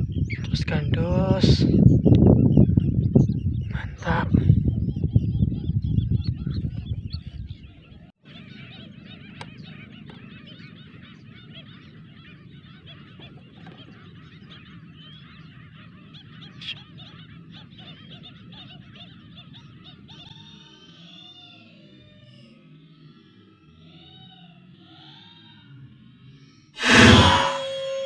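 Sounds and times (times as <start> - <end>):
chorus of birds chattering: 0.0 - 28.0
loud low rumble: 26.8 - 28.0.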